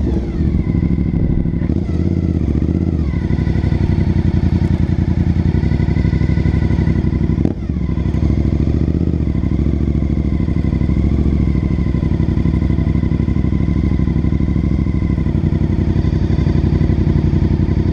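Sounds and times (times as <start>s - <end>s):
motorcycle engine running: 0.0s - 17.9s.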